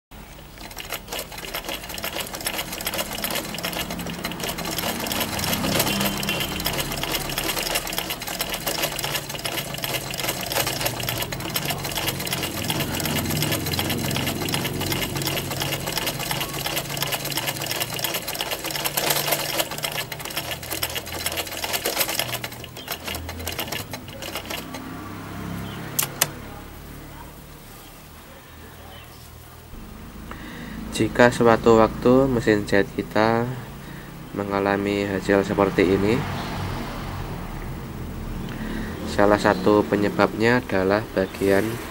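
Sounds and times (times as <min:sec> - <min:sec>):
sewing machine stitching: 0:00.2 - 0:26.4
sharp clicks: 0:25.6 - 0:26.4.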